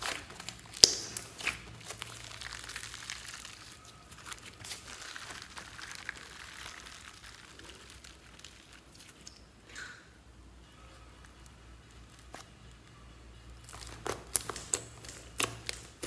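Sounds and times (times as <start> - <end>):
slime sticky clicks and crackles: 0.0 - 6.8, 13.6 - 16.0.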